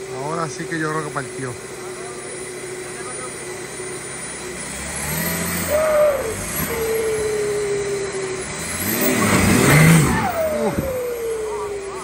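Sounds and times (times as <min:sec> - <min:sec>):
engine revving under load: 0:00.0 - 0:12.0
whine sliding down in pitch: 0:04.8 - 0:12.0.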